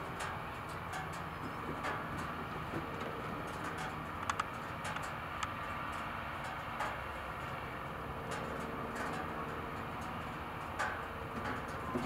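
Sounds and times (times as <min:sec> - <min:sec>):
distant tractor engine running: 0:00.0 - 0:12.0.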